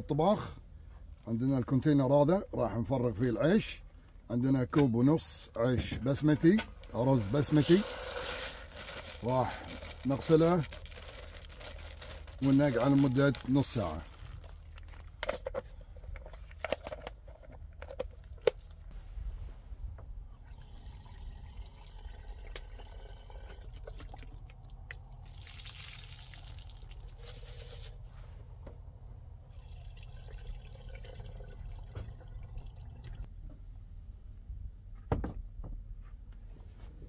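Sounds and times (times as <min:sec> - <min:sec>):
water trickling into container: 0:20.5 - 0:27.6, 0:29.5 - 0:33.3.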